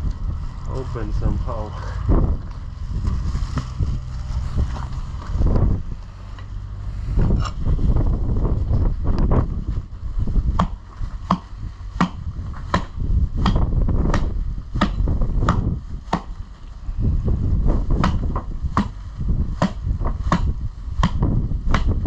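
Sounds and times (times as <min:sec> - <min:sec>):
wind rumble on microphone: 0:00.0 - 0:22.0
axe chopping into carcass: 0:10.5 - 0:16.3, 0:18.0 - 0:19.0, 0:19.6 - 0:22.0.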